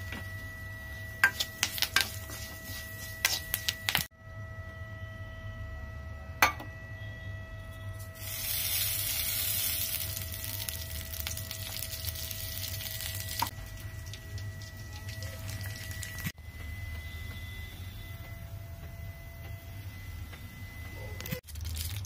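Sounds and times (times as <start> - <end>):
hot oil sizzling: 1.2 - 4.1, 8.2 - 16.4, 21.4 - 22.0.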